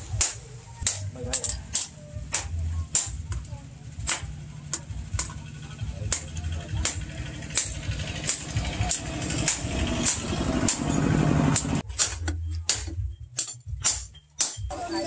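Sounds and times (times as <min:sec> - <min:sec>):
low engine-like drone: 0:00.0 - 0:11.8.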